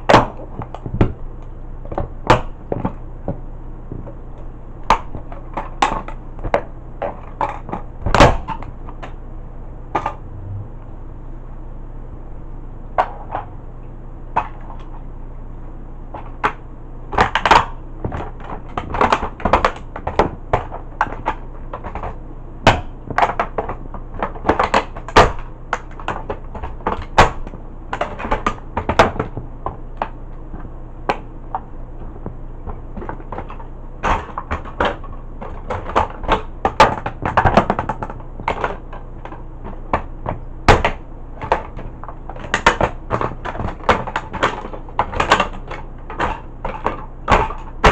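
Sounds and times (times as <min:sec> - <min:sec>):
plastic cracking and snapping: 0:16.2 - 0:47.9.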